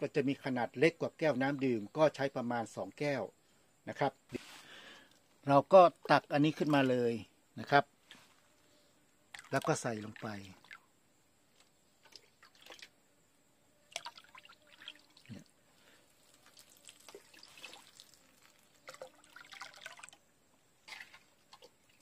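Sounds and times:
liquid dripping in watering can: 9.3 - 10.8, 16.1 - 20.2.

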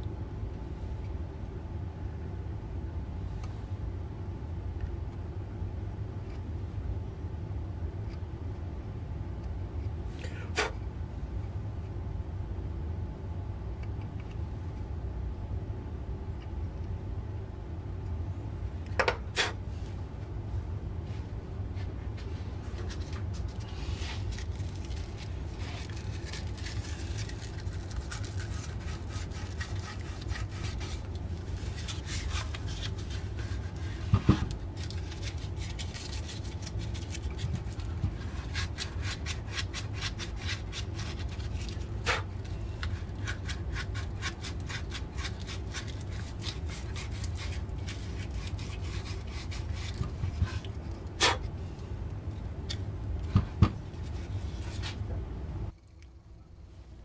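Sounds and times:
steady low hum: 0.0 - 57.0
scraping on carved wood: 24.8 - 51.4.

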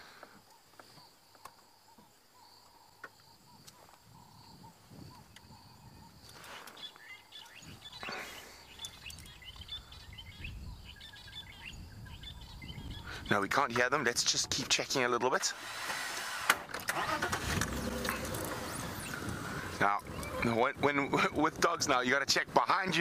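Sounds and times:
bird chirps: 0.4 - 13.8.

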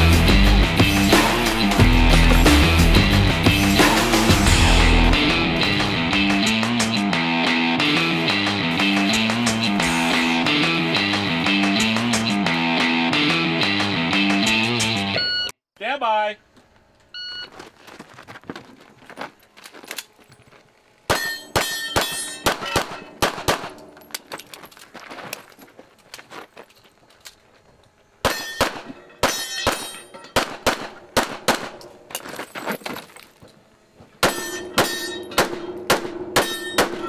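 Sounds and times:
handgun shots: 21.1 - 23.9, 28.2 - 31.9, 34.2 - 37.0
steel targets clanging: 21.1 - 24.3, 28.2 - 30.5, 34.2 - 37.0.

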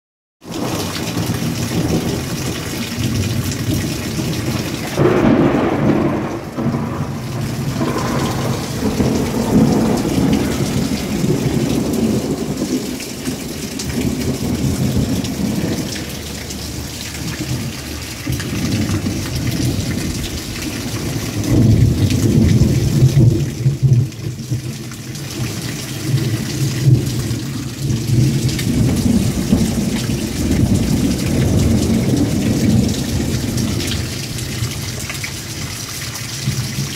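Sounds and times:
heavy rain pouring: 0.4 - 36.9
gusting wind: 4.4 - 23.2.

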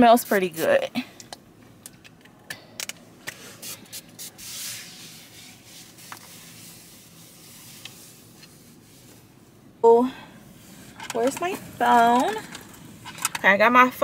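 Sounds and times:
rubbing surfaces: 3.4 - 9.2.

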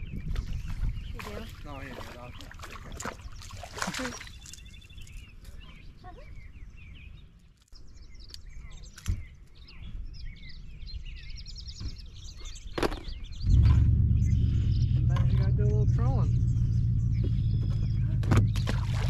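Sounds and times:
songbirds chirping: 0.0 - 19.0
loud low rumble: 13.3 - 19.0.

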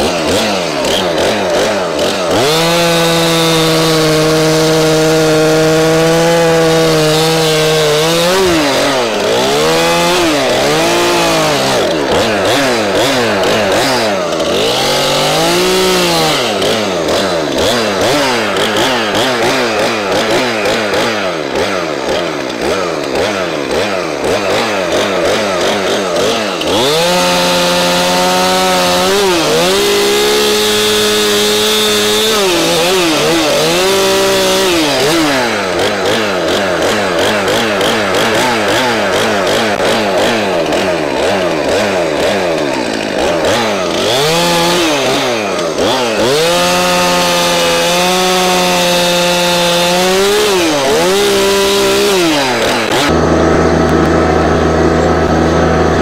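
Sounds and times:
chainsaw revving: 0.0 - 56.0.

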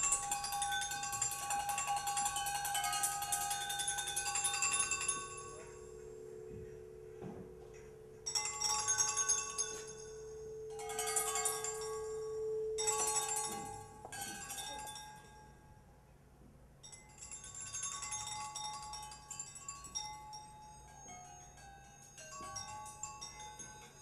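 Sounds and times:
steady held tone: 0.0 - 14.2
bell-like chiming tones: 0.0 - 15.6, 16.8 - 24.0.

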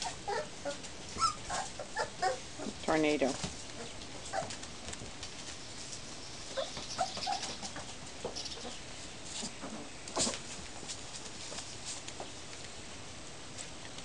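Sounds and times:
puppies whimpering and yipping: 0.0 - 2.8, 3.8 - 4.6, 6.5 - 7.8
paws scratching on floor: 0.3 - 12.7.

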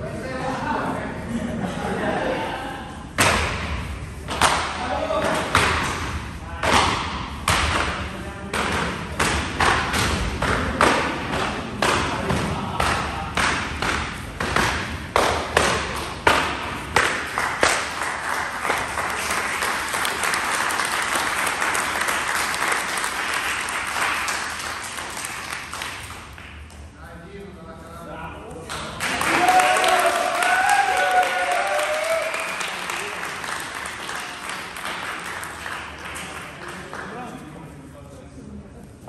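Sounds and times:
applause: 17.0 - 26.7, 28.7 - 37.4.

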